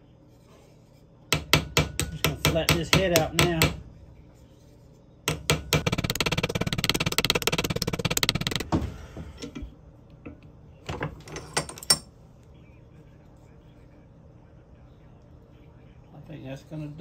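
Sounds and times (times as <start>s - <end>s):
hammer tapping on metal: 1.3s - 3.9s, 5.3s - 8.7s.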